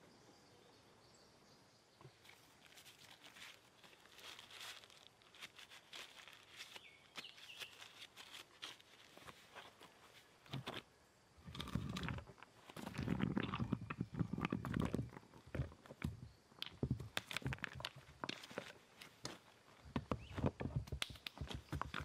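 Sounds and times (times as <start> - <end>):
paper crinkling and rustling: 2.2 - 10.8, 17.1 - 19.5
small clicks and taps: 19.2 - 22.0.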